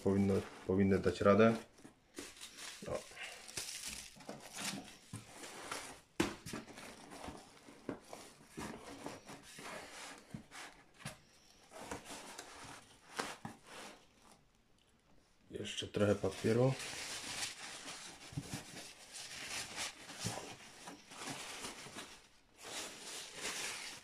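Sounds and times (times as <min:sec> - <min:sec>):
foil and paper crinkling: 0:00.0 - 0:05.2, 0:16.0 - 0:24.0.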